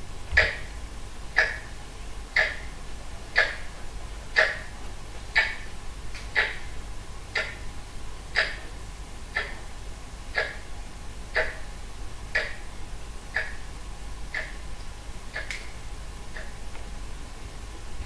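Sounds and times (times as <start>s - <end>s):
clock ticking: 0.4s - 0.7s, 1.3s - 4.7s, 5.3s - 5.7s, 6.3s - 6.7s, 7.3s - 7.7s, 8.3s - 8.7s, 9.3s - 9.7s, 10.3s - 10.7s, 11.3s - 12.7s, 13.3s - 13.7s, 14.3s - 14.7s, 15.3s - 15.7s, 16.3s - 16.6s.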